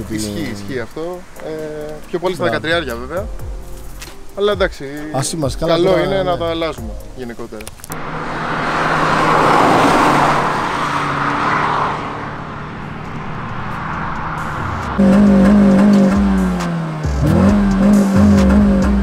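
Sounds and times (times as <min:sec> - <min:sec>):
car driving past: 0:07.9 - 0:18.0
loud steady engine note: 0:12.3 - 0:19.0.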